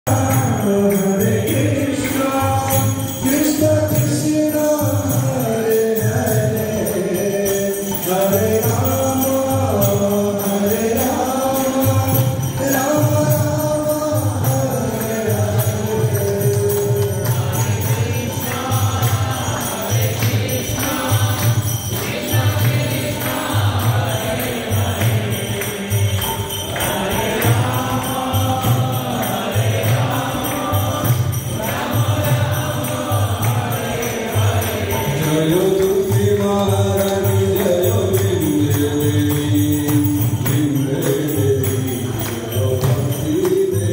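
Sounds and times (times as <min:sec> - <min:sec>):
jingling cymbals: 0:00.0 - 0:43.9
crowd singing devotional chant: 0:00.1 - 0:43.9
hand clapping: 0:16.2 - 0:43.9.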